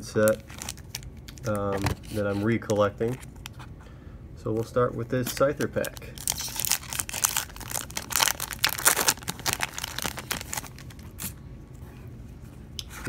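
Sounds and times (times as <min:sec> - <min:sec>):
foil wrapper tearing and crinkling: 0:00.3 - 0:02.2, 0:05.2 - 0:11.4.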